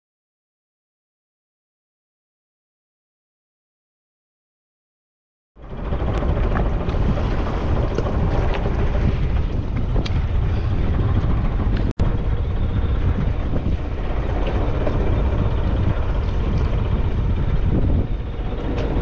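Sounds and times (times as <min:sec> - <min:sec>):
steady low rumble: 0:05.6 - 0:19.0
wind buffeting microphone: 0:05.6 - 0:19.0.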